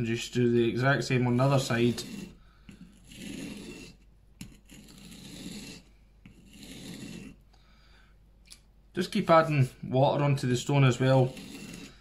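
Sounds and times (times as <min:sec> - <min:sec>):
knife scraping on whetstone: 0:01.0 - 0:07.4, 0:10.7 - 0:12.0.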